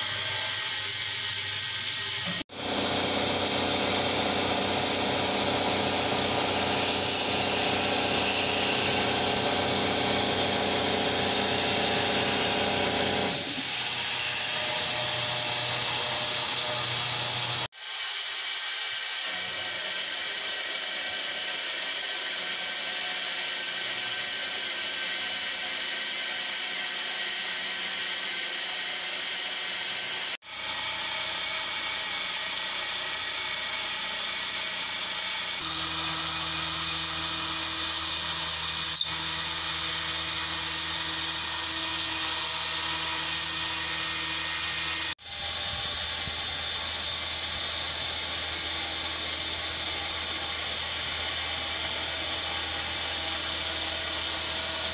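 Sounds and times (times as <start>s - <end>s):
milling machine cutting whine: 0.0s - 17.7s, 33.2s - 54.9s.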